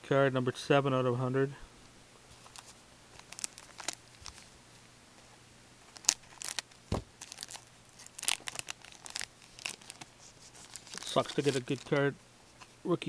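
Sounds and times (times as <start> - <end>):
wrapper crinkling and tearing: 2.4 - 4.5, 5.9 - 12.1
soft low thump: 6.9 - 7.1.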